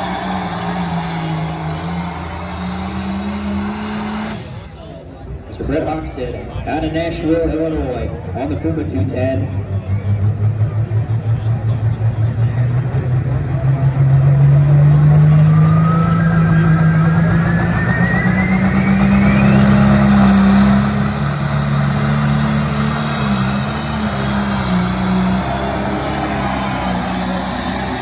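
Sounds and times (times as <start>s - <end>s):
turbocharger whistle: 0.0s - 4.7s, 15.3s - 21.4s, 22.6s - 28.0s
tractor diesel engine revving: 0.0s - 5.8s, 8.7s - 28.0s.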